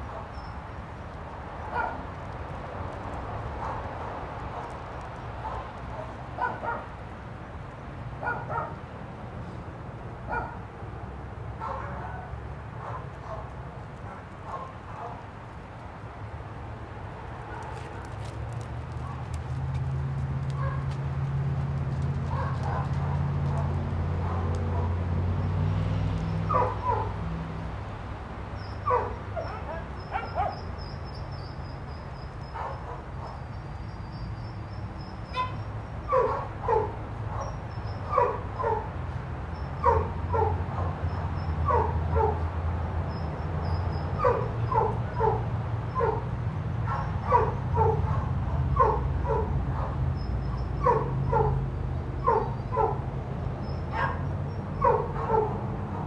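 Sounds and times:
dog barking: 0:01.7 - 0:02.0, 0:03.6 - 0:03.8, 0:05.4 - 0:06.9, 0:08.2 - 0:08.8, 0:10.3 - 0:10.6, 0:11.6 - 0:13.5, 0:14.1 - 0:15.2, 0:20.6 - 0:20.9, 0:22.3 - 0:25.0, 0:26.5 - 0:27.2, 0:28.8 - 0:30.7, 0:32.5 - 0:33.4, 0:35.3 - 0:38.9, 0:39.8 - 0:41.0, 0:41.6 - 0:42.4, 0:44.2 - 0:46.2, 0:46.8 - 0:50.0, 0:50.8 - 0:51.6, 0:52.2 - 0:53.0, 0:53.9 - 0:55.6.

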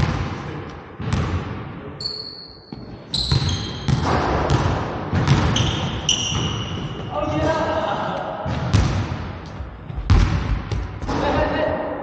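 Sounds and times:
sneakers squealing on floor: 0:02.0 - 0:07.8
basketball bouncing on hardwood: 0:02.7 - 0:07.1, 0:08.5 - 0:11.2.

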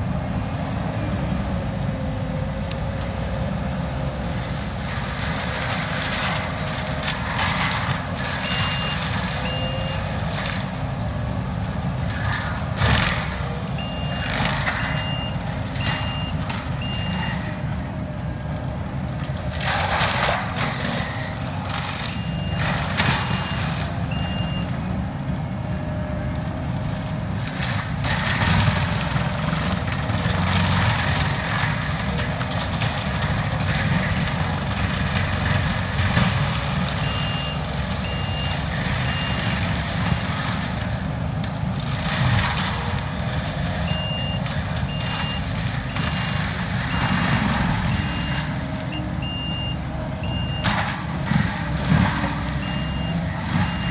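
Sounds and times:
diesel mulcher machine running: 0:00.0 - 0:53.9
mulcher crackling through brush: 0:01.5 - 0:53.9
reversing alarm beeps: 0:08.4 - 0:10.1, 0:13.8 - 0:17.6, 0:22.0 - 0:24.7, 0:37.0 - 0:39.5, 0:43.9 - 0:50.8, 0:52.6 - 0:53.9.

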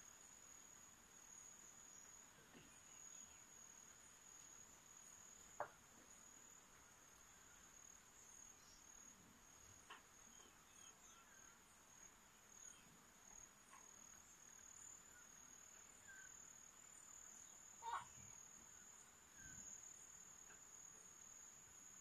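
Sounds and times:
insect trilling: 0:17.4 - 0:19.8.

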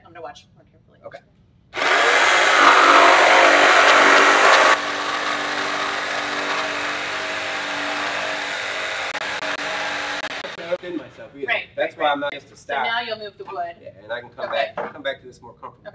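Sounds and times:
jigsaw cutting wood: 0:01.8 - 0:10.9.

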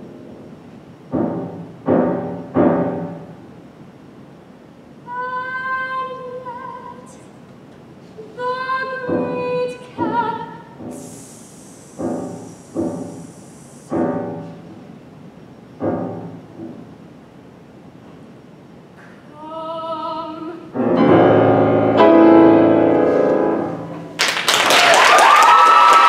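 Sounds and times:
piano chords: 0:00.0 - 0:03.6, 0:08.9 - 0:11.2, 0:11.9 - 0:17.2, 0:20.7 - 0:24.2
soprano singing: 0:05.0 - 0:07.3, 0:08.2 - 0:13.2, 0:19.3 - 0:24.1.

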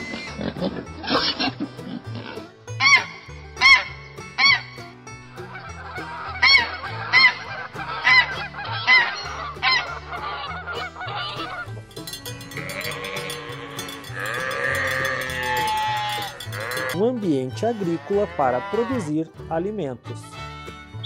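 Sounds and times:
goose honking: 0:05.4 - 0:11.8, 0:12.6 - 0:19.1
sheep bleating: 0:12.5 - 0:19.1.

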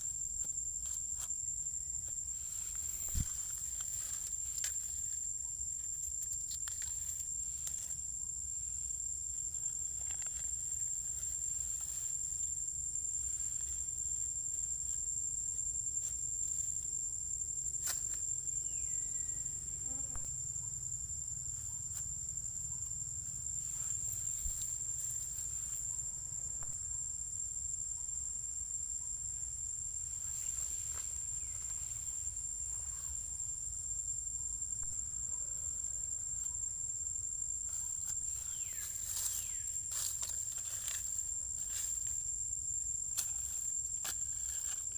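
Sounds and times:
insects whining: 0:00.0 - 0:44.9.

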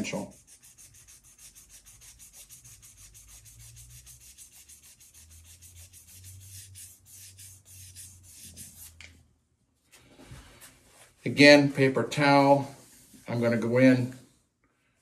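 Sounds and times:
hand sanding metal: 0:00.0 - 0:09.0.

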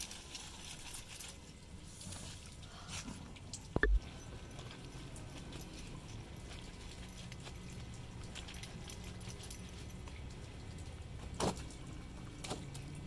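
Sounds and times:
low rumble: 0:03.8 - 0:04.1.

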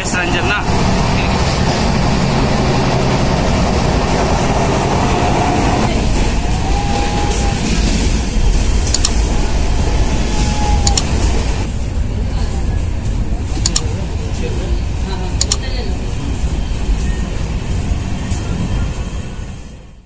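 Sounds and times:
train wheels rumbling on rails: 0:00.0 - 0:20.0
sharp clicks: 0:08.9 - 0:09.3, 0:10.8 - 0:11.2, 0:13.6 - 0:13.9, 0:15.4 - 0:15.6.

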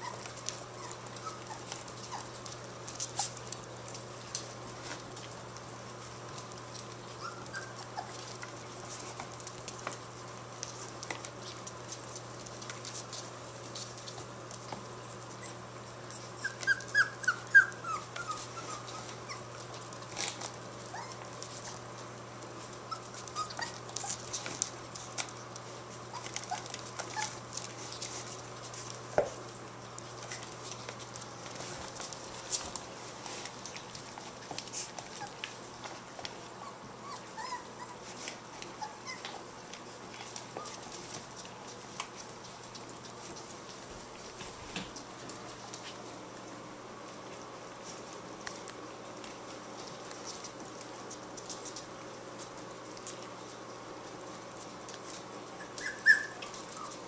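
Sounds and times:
puppies yelping: 0:00.0 - 0:02.4, 0:07.1 - 0:08.4, 0:15.1 - 0:19.6, 0:22.9 - 0:24.2, 0:36.6 - 0:39.4, 0:55.6 - 0:57.0
puppies whimpering and yipping: 0:00.0 - 0:03.4, 0:07.1 - 0:09.2, 0:15.0 - 0:21.8, 0:22.6 - 0:24.7, 0:26.1 - 0:28.2, 0:34.2 - 0:35.6, 0:36.4 - 0:39.5, 0:40.2 - 0:41.0, 0:55.5 - 0:57.0
paws clicking on wooden floor: 0:00.0 - 0:57.0.

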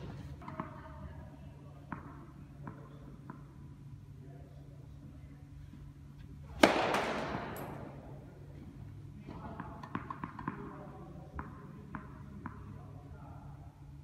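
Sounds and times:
tennis ball bouncing on court: 0:01.9 - 0:03.5, 0:09.3 - 0:10.8, 0:11.4 - 0:12.7.

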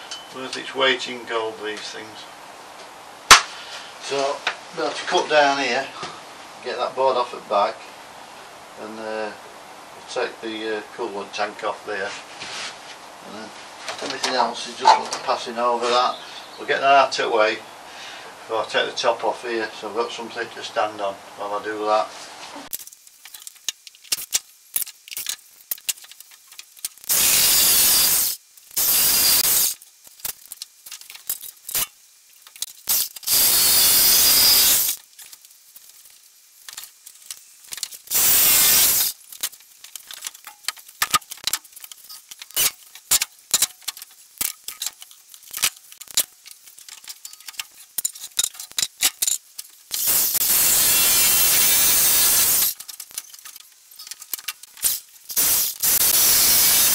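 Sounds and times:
reciprocating saw cutting wood: 0:32.9 - 0:35.0, 0:49.9 - 0:52.8.

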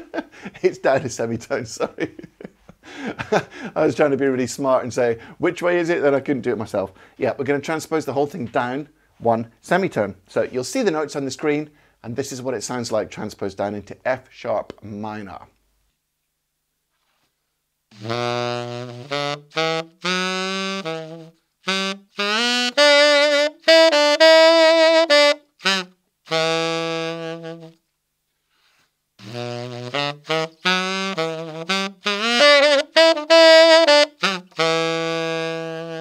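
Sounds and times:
tenor saxophone blues lick: 0:17.9 - 0:27.9, 0:28.6 - 0:36.0.

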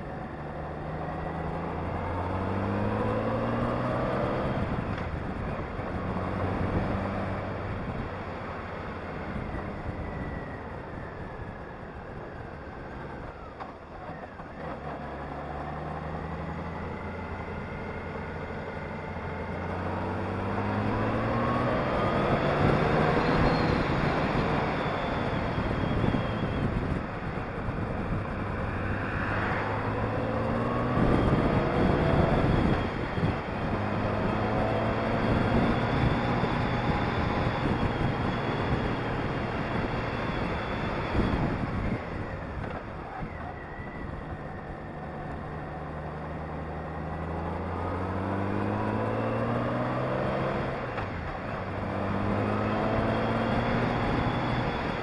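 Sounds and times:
motorcycle engine accelerating: 0:00.0 - 0:11.2, 0:12.6 - 0:55.0
wind rush: 0:20.0 - 0:45.7.

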